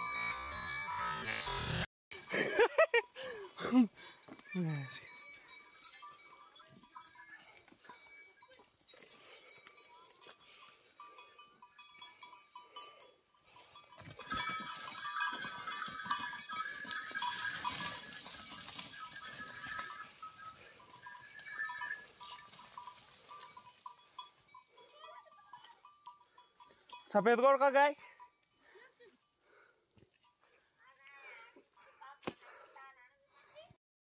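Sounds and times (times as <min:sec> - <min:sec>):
cattle bells jingling: 0:00.0 - 0:33.7
bulls moving through dry brush: 0:04.0 - 0:27.0.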